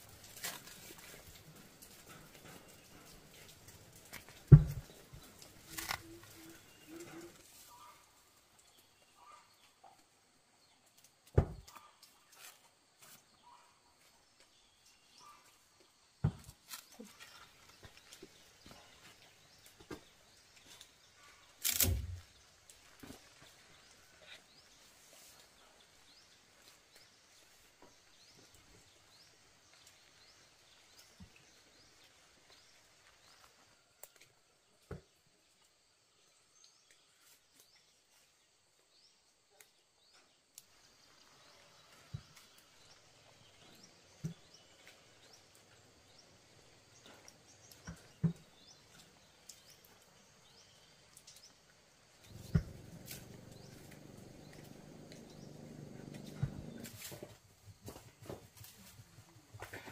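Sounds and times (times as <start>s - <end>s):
bananas knocking and rustling: 0.0s - 7.9s, 11.2s - 13.2s, 16.2s - 20.8s
faint bird chirps: 5.7s - 10.0s.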